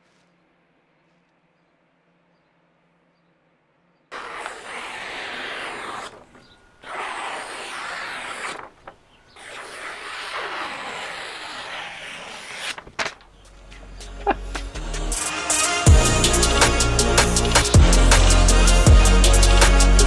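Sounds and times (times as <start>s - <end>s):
knife slicing paper: 4.1s - 13.4s.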